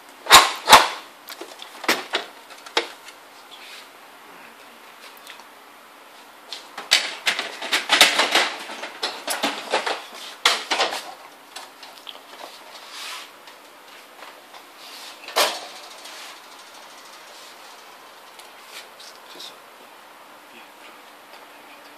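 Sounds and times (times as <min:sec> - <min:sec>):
plastic racks clattering: 0:00.3 - 0:03.2, 0:06.5 - 0:17.8.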